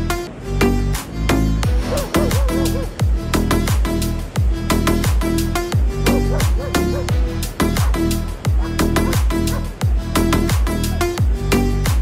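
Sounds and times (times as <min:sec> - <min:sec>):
electronic music with kick drum: 0:01.4 - 0:12.0.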